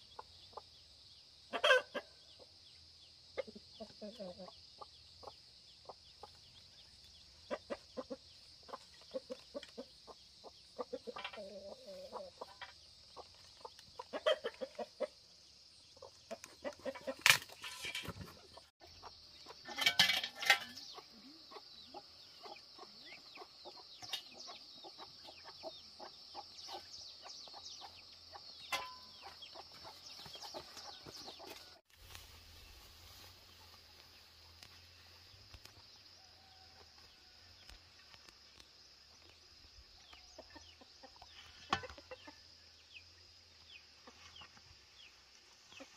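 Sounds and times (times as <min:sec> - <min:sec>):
chickens clucking: 0:00.0 - 0:00.8, 0:01.5 - 0:02.6, 0:03.3 - 0:31.8, 0:40.0 - 0:42.9, 0:43.7 - 0:45.9.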